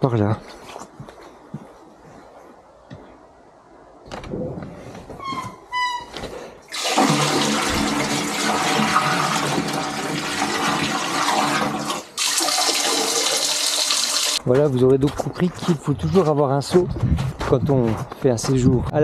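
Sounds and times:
short descending squeak: 5.2s - 6.2s
water gushing into a drain: 6.7s - 14.4s.

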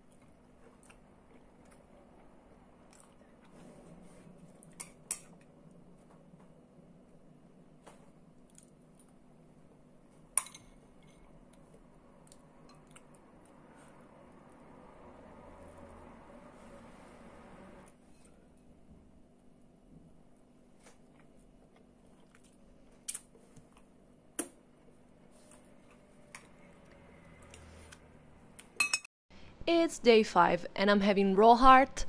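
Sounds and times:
chewing and wet mouth noises: 0.0s - 3.6s, 11.4s - 13.6s, 20.8s - 23.9s.

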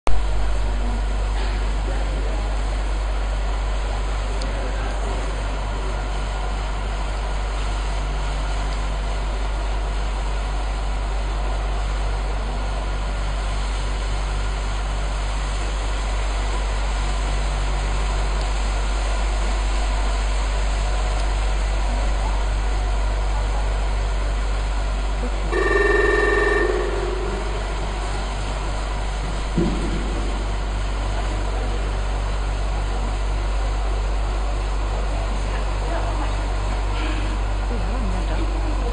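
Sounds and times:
indoor arena hum and hiss: 0.1s - 38.9s
ringing electronic signal tone: 25.5s - 28.4s.

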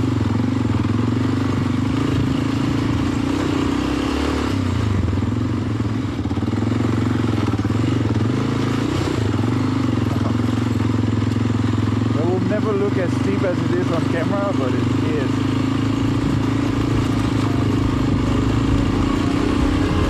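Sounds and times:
motorcycle engine revving: 0.0s - 20.0s.

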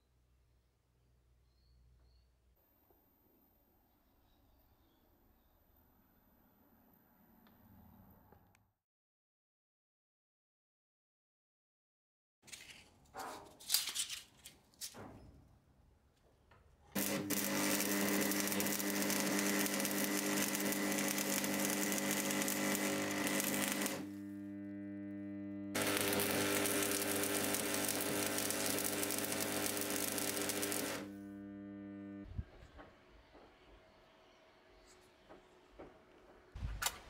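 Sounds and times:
welder electrical hum: 16.9s - 32.9s
arc welding crackle: 17.0s - 32.3s.

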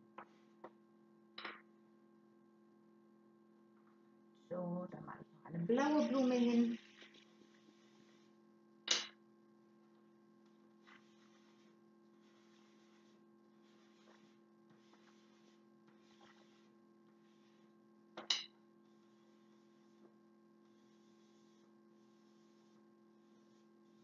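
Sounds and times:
low electrical hum: 0.0s - 24.0s
chalk rubbing on cardboard: 7.5s - 8.4s, 10.8s - 17.8s, 18.8s - 24.0s.

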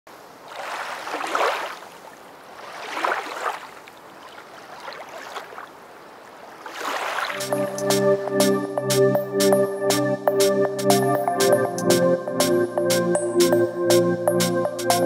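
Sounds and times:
water sloshing: 0.4s - 7.5s.

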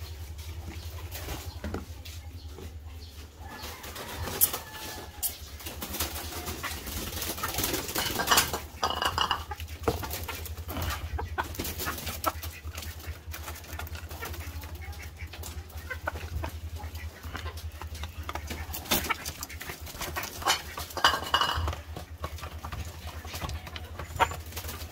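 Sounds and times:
chickens calling: 0.0s - 24.9s
feeding gear clattering: 7.8s - 11.0s, 16.8s - 24.9s.

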